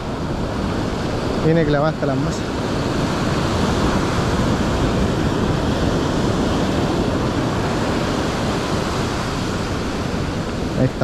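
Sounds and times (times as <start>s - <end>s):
ocean surf breaking on beach: 0.0s - 11.0s.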